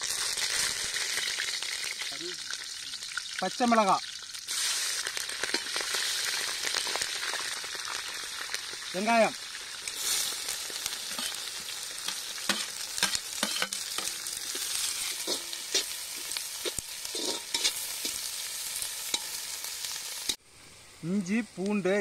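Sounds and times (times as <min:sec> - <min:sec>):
onions sizzling in hot oil: 0:00.0 - 0:22.0
metal ladle scraping a pan: 0:11.1 - 0:19.6.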